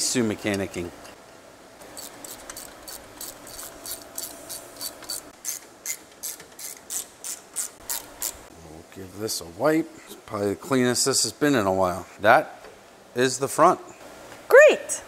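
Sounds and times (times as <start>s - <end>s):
ratchet wrench clicking: 2.0s - 8.4s.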